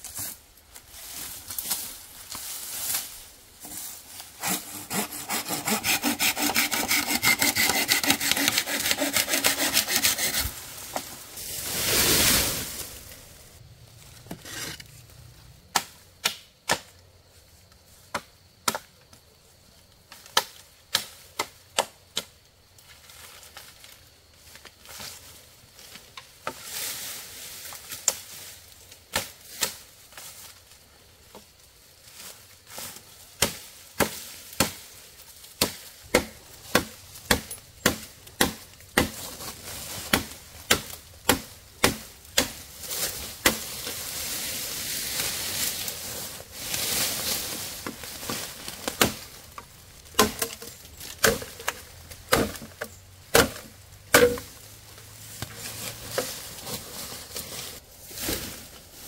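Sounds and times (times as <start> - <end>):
steady hiss: 9.1 - 13.6
sharp chopping strikes: 35.6 - 39.2, 40.1 - 42.6, 50.2 - 50.6, 52.3 - 52.7, 53.3 - 54.5.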